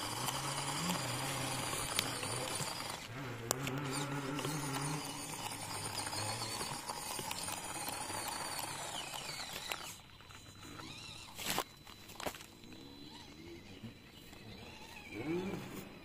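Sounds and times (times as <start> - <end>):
electric motor and gears whining: 0.0 - 16.0.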